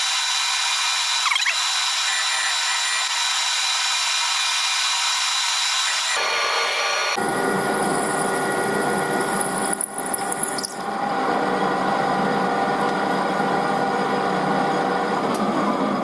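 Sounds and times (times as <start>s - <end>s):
drill cutting whine: 0.0s - 10.9s
metal lathe running: 0.0s - 16.0s.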